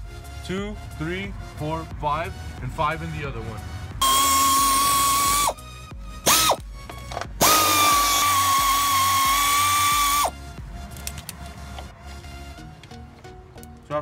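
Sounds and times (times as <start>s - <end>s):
power tool whining: 4.0s - 5.6s, 6.2s - 10.3s.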